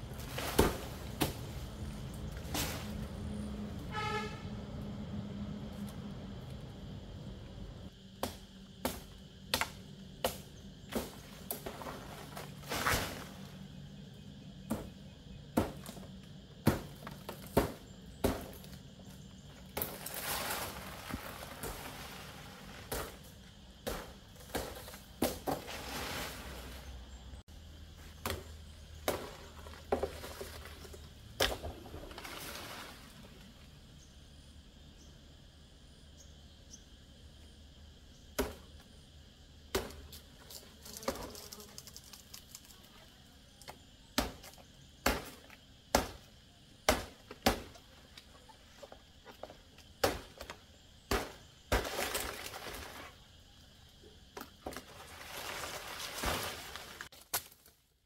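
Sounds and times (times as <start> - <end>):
blade chopping palm leaves: 0.1 - 1.7, 8.2 - 13.5, 14.6 - 16.0, 16.6 - 18.8, 19.7 - 26.5, 28.2 - 30.4, 38.4 - 38.7, 39.7 - 40.2, 44.2 - 47.8, 49.9 - 53.0, 54.6 - 57.7
leaf rustling: 19.8 - 23.2, 25.6 - 27.1, 54.7 - 57.8.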